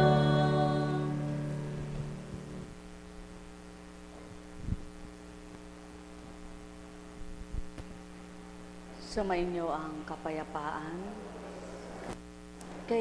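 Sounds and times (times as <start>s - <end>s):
music: 0.0s - 2.7s
electrical mains hum: 0.0s - 13.0s.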